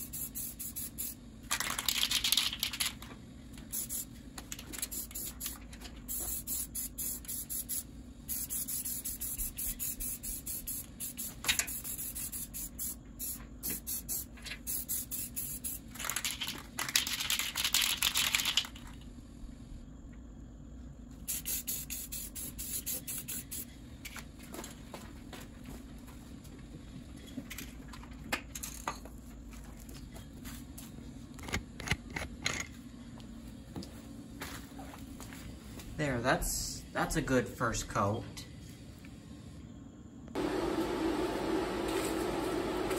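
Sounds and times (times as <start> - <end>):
spray paint can hissing: 0.0 - 2.9, 3.6 - 18.8, 21.2 - 23.7.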